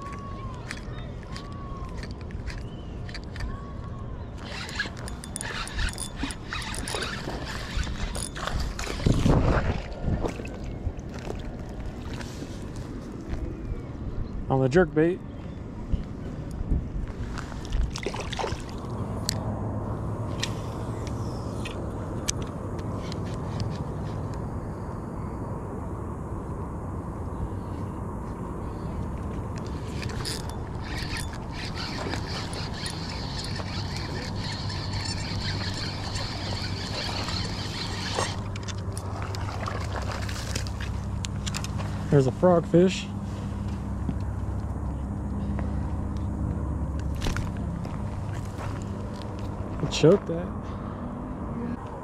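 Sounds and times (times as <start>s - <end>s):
reel and rod clicks: 0.0s - 3.6s, 4.3s - 9.4s, 29.5s - 41.8s
wind buffeting microphone: 2.9s - 14.5s
spinning reel cranking: 4.4s - 9.0s, 30.0s - 38.8s
camera handling clicks and rustles: 40.5s - 41.9s.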